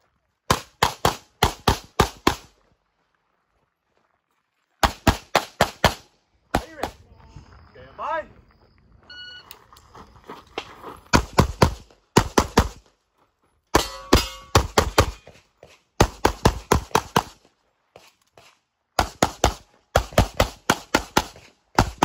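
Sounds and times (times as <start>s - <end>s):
shot timer beep: 9.1s - 9.5s.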